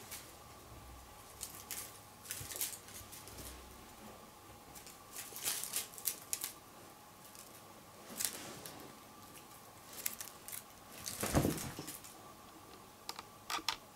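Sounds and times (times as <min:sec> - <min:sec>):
soft thump with rustling: 0:11.1 - 0:12.0.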